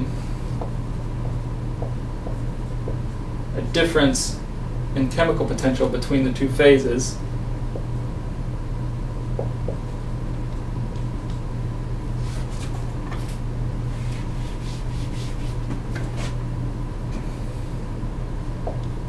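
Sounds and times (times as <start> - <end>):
low hum: 0.0 - 19.0
scratchy writing strokes: 13.9 - 16.4.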